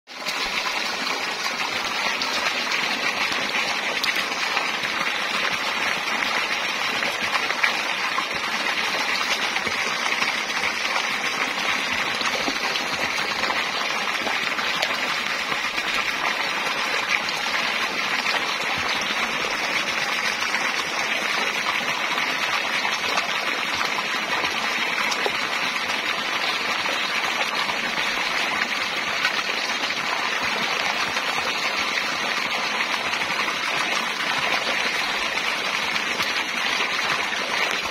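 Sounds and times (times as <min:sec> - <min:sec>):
water jet gushing into river: 0:00.1 - 0:37.9.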